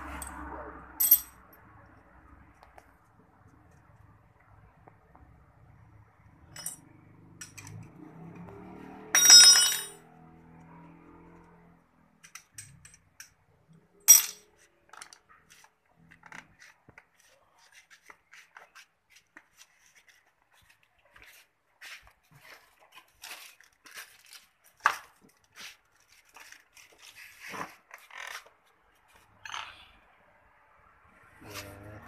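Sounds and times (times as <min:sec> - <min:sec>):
metal parts clinking: 0:01.0 - 0:01.3, 0:09.2 - 0:10.0, 0:14.1 - 0:15.1.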